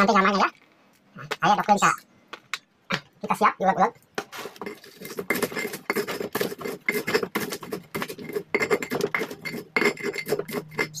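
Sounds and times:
stone pestle pounding in mortar: 0:04.6 - 0:11.0.

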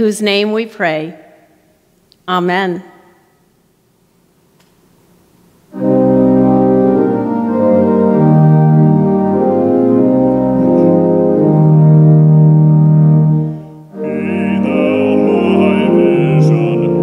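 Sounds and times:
church organ chords: 0:05.7 - 0:17.0.

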